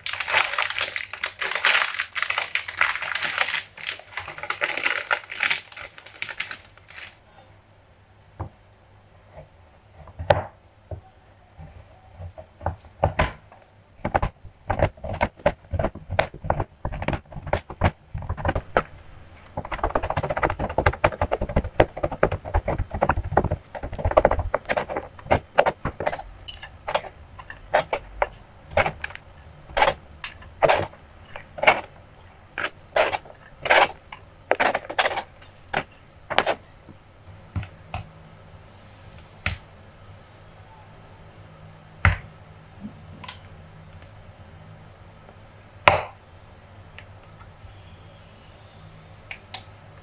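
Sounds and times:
knife chopping chocolate on board: 0:45.9 - 0:46.1.

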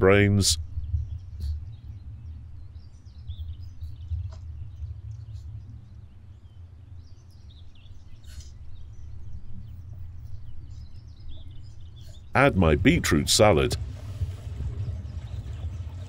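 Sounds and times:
birds chirping: 0:00.0 - 0:16.0
low outdoor rumble: 0:07.9 - 0:16.0.

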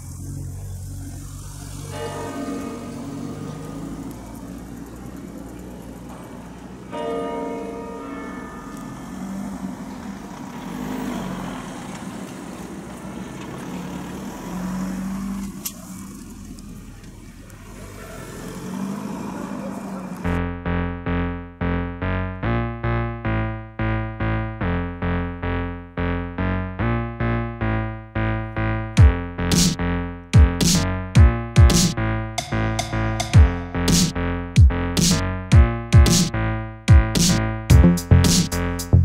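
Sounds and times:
low sustained bass notes: 0:00.0 - 0:10.3, 0:19.9 - 0:39.0
bell-like chime chord: 0:01.8 - 0:03.8.

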